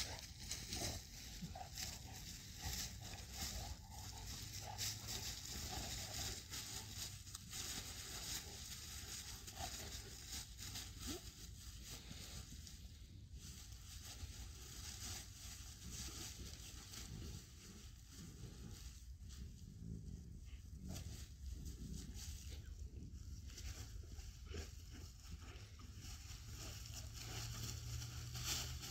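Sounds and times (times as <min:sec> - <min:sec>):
dry leaves crackling under dogs: 0:00.0 - 0:28.9.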